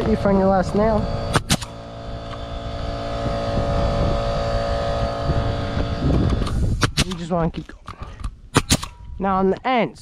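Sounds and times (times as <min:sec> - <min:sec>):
air compressor motor running: 0:00.0 - 0:07.1
pneumatic nail gun shots: 0:01.3 - 0:02.5, 0:06.1 - 0:07.2, 0:08.5 - 0:09.0.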